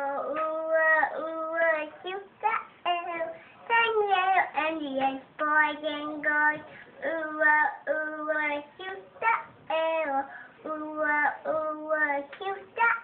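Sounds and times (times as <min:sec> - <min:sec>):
girl singing: 0:00.0 - 0:13.0.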